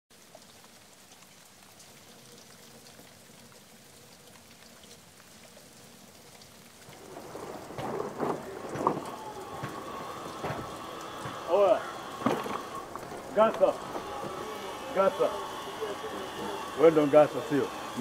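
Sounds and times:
rain falling on foliage: 0.1s - 18.0s
water drips ticking: 0.1s - 18.0s
sharp knocks: 7.3s - 15.7s.

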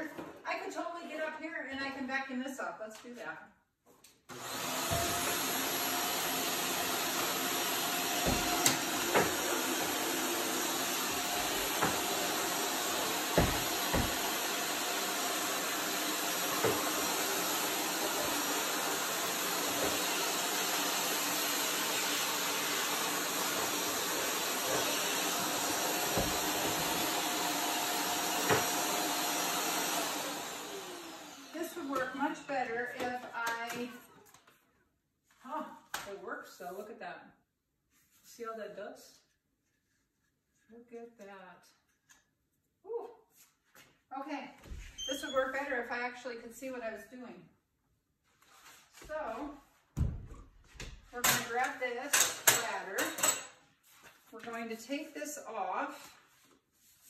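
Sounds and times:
vacuum cleaner running: 4.3s - 33.8s.

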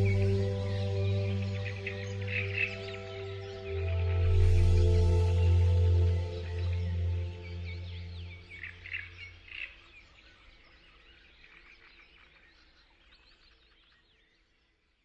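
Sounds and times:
low music drone: 0.0s - 9.3s
birds chirping: 0.0s - 11.1s.

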